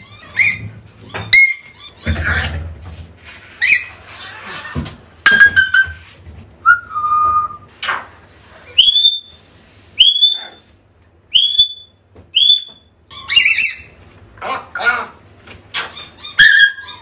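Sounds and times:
parrot whistling: 6.6 - 7.7, 8.7 - 9.4, 10.0 - 10.6, 11.3 - 14.0, 16.2 - 17.0.

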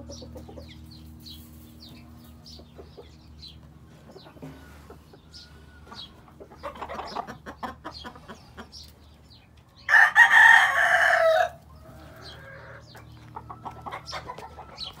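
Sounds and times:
chickens clucking: 0.0 - 15.0
rooster crowing: 9.9 - 12.8.

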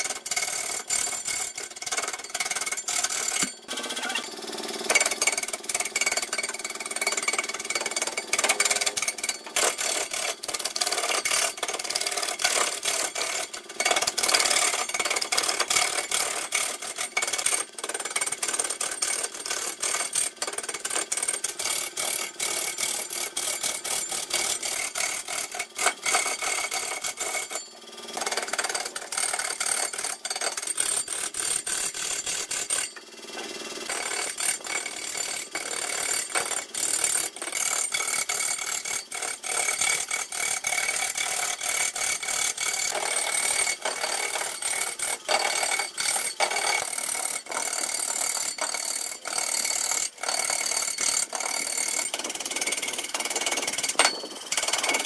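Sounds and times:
lathe tool scraping wood: 42.2 - 55.0.

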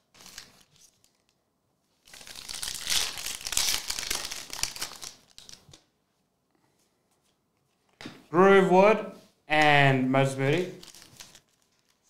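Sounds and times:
foil wrapper crinkling: 0.0 - 1.4, 2.0 - 5.8, 10.7 - 12.0.

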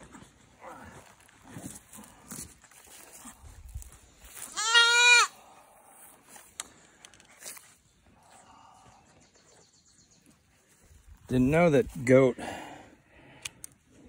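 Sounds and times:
goat kid bleating: 4.4 - 5.4.

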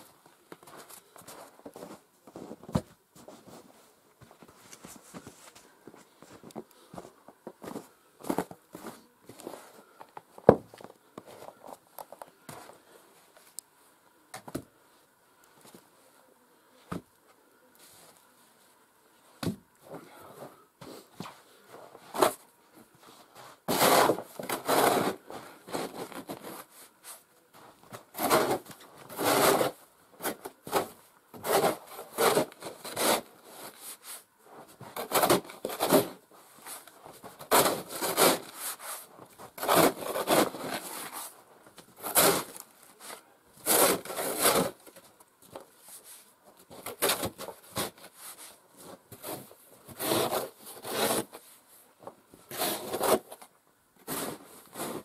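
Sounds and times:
snow shovel scraping snow: 23.7 - 26.6, 28.2 - 34.2, 35.0 - 36.8, 37.5 - 41.4, 42.0 - 44.8, 49.1 - 51.4, 52.5 - 53.3, 54.1 - 55.0.

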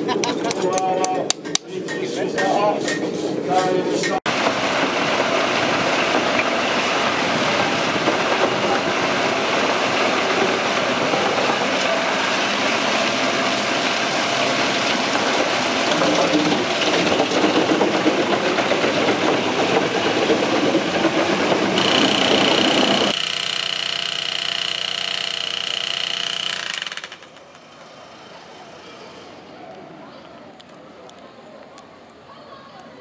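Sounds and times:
wood chipper grinding logs: 4.3 - 29.2.

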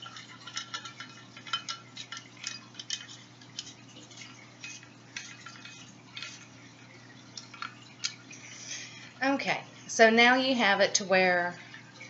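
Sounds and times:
small metallic clicks and scrapes: 0.0 - 6.5.

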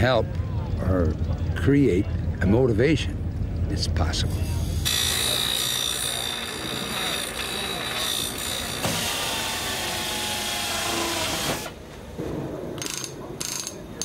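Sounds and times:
bench grinder grinding: 4.6 - 11.8
power drill boring into metal: 4.8 - 11.8.

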